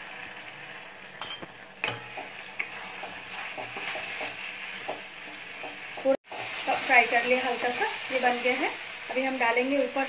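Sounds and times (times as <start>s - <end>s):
chicken sizzling in a pan: 0.0s - 10.0s
spatula knocking and scraping pan: 1.2s - 7.9s.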